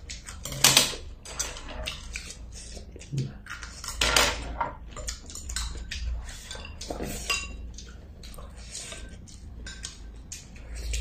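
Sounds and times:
utensils clinking on ceramic bowls: 3.4s - 11.0s.

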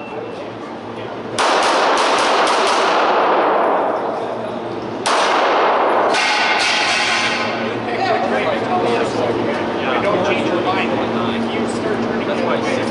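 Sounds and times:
pistol shots echoing: 1.4s - 4.0s, 5.0s - 6.6s.

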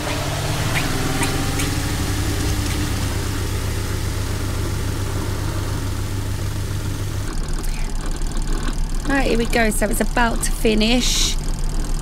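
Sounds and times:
water rushing from drain hose: 0.0s - 8.1s
washing machine spin motor humming: 0.0s - 12.0s.

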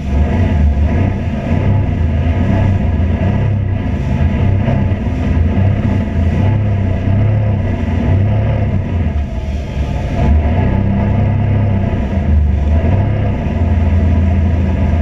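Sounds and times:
vehicle engine drone: 0.0s - 15.0s.

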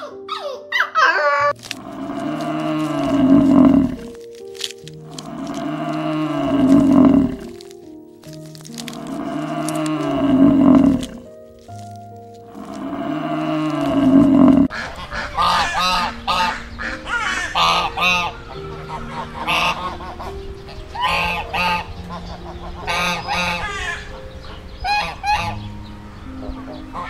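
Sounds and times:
buffalo bellowing: 1.6s - 14.8s
ducks quacking: 12.5s - 25.7s.

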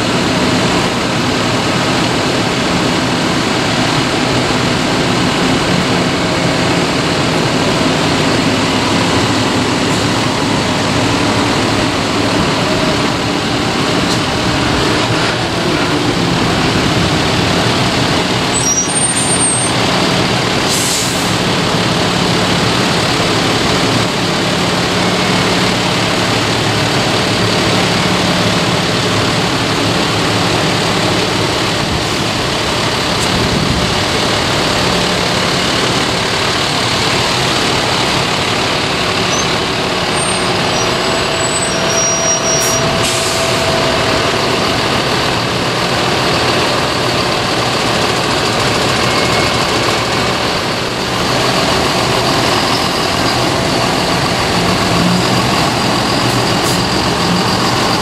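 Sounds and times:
tractor diesel engines: 0.0s - 58.0s
high squeaks: 18.5s - 19.8s, 39.2s - 44.8s, 52.2s - 58.0s.

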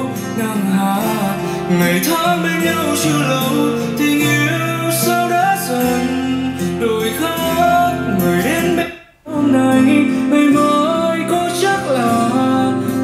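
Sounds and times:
song with guitar and singing: 0.0s - 13.0s.

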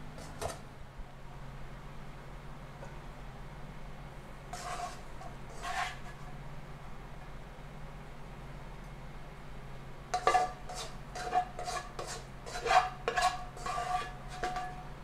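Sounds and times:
spoon scraping and knocking bowl: 4.6s - 6.2s, 10.2s - 14.9s.

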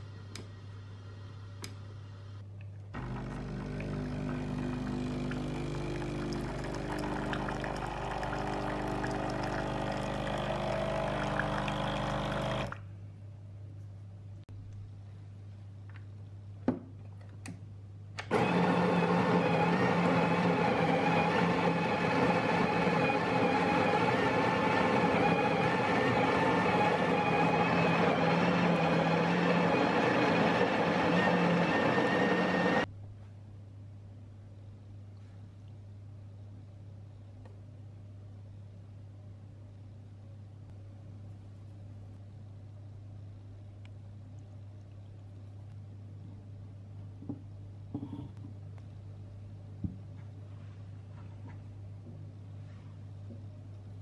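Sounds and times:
coffee grinder grinding beans: 3.0s - 12.7s, 18.3s - 32.8s
espresso machine pump humming: 3.0s - 12.8s, 18.3s - 32.9s
water splashing into a cup: 5.3s - 12.8s
faint low hum: 32.8s - 54.0s.

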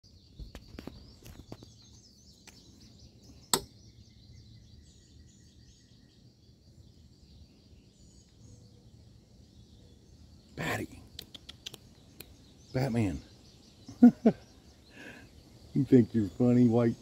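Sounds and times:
small birds chirping: 0.0s - 17.0s
light clicks: 11.2s - 12.4s.

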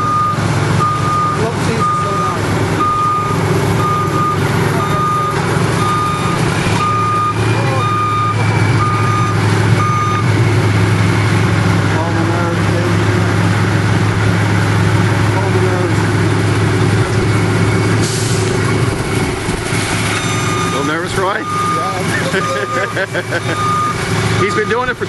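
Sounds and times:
reverse alarm beeping: 0.0s - 10.4s, 20.1s - 25.0s
truck engine running: 0.0s - 25.0s.

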